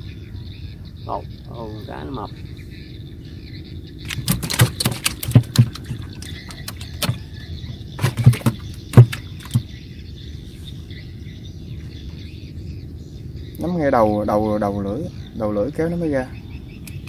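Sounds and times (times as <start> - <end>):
steady low hum: 0.0 - 17.0
fish thrashing knocks and thumps: 4.0 - 9.8.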